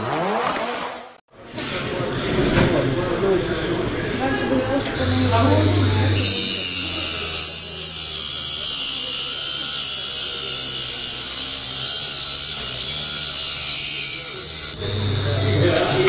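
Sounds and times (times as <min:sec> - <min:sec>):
rotary tool grinding metal: 0:04.9 - 0:16.0.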